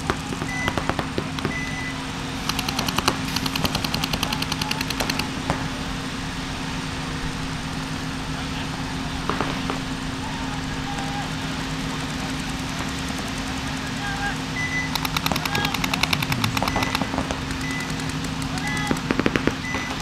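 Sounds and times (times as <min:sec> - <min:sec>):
paintball markers firing: 0:02.4 - 0:05.6, 0:15.0 - 0:20.0
steady low hum: 0:11.5 - 0:20.0.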